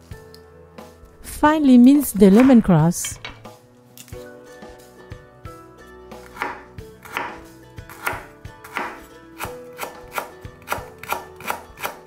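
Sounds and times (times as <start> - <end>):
knife chopping on wooden board: 6.2 - 12.0.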